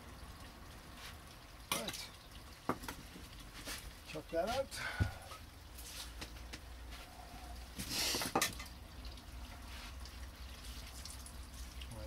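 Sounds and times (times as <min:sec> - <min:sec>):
water splashing: 0:07.8 - 0:12.0.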